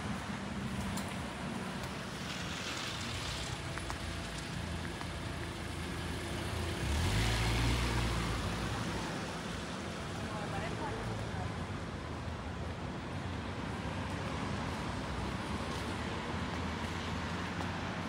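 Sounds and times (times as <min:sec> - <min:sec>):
cars passing: 0:00.0 - 0:18.0
vehicle engine rumble passing close: 0:01.2 - 0:12.8.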